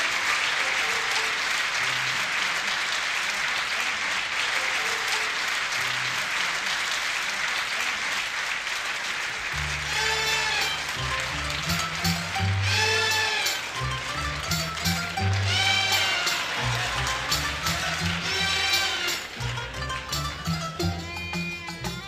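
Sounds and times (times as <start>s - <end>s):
audience applauding: 0.0s - 22.0s
faint instrumental notes: 9.6s - 22.0s
orchestra playing low sustained notes: 9.6s - 22.0s.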